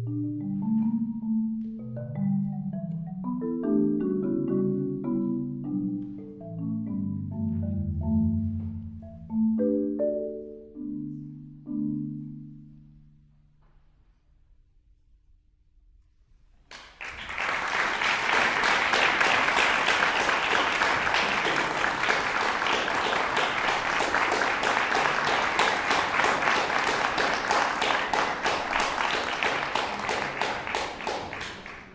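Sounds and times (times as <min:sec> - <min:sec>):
audience applauding: 0:16.7 - 0:31.9.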